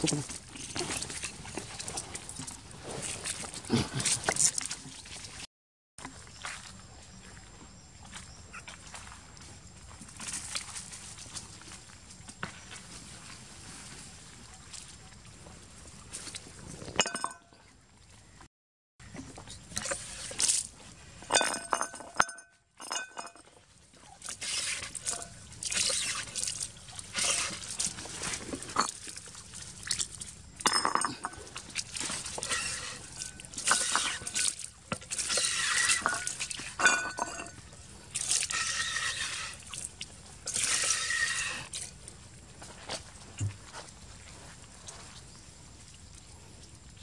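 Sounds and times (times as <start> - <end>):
hand water pump strokes: 0.0 - 5.4, 19.1 - 22.2, 22.8 - 42.1
water splashing on wet ground: 24.2 - 30.8, 31.4 - 36.8, 38.0 - 42.0.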